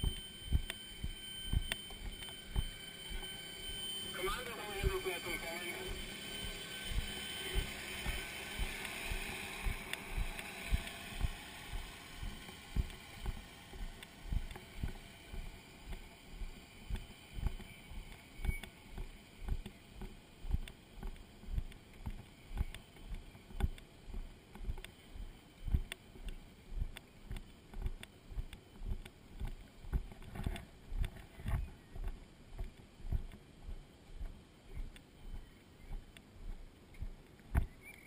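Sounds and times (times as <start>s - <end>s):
running footsteps thumping: 0.0s - 3.7s, 5.9s - 37.7s.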